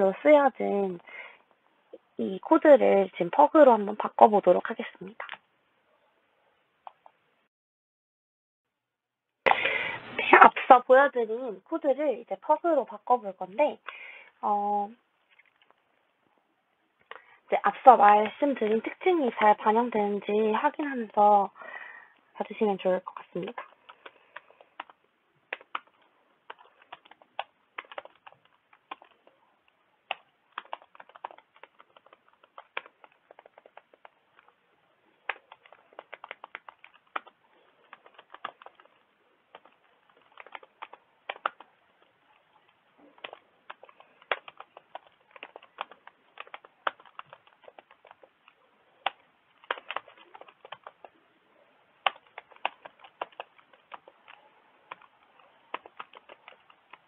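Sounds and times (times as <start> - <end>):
computer keyboard typing: 23.0 - 57.0.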